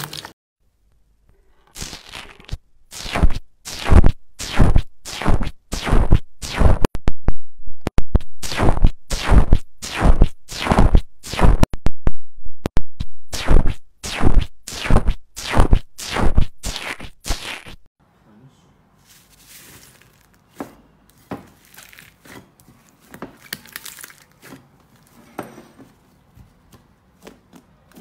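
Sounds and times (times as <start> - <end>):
stick squishing foam slime: 19.3 - 25.2.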